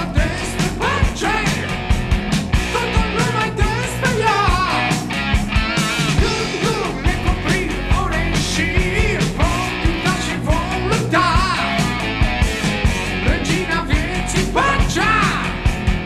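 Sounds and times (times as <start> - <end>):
person singing: 0.0 - 1.8, 2.7 - 5.0, 6.2 - 11.9, 13.1 - 15.7
rock guitars: 0.0 - 16.0
steady drum beat: 0.0 - 16.0.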